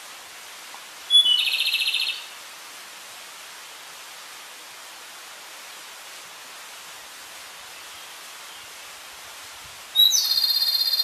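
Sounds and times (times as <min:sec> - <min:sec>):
steady hiss: 0:00.0 - 0:11.0
bird whistles and trill: 0:01.1 - 0:02.2, 0:10.0 - 0:11.0.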